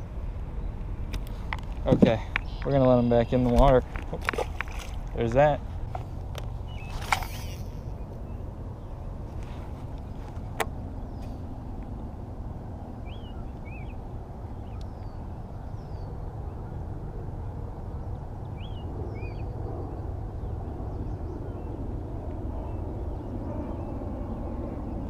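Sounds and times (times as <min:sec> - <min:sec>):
small bird chirping: 0:06.6 - 0:08.5, 0:13.0 - 0:14.0.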